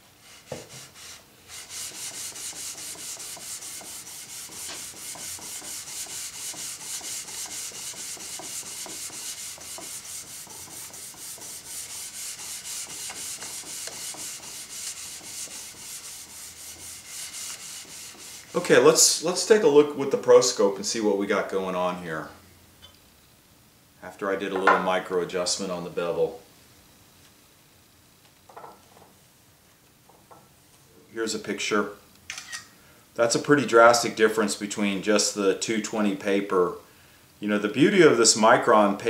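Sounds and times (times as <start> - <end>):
blade rasping on abrasive film: 1.0 - 18.6.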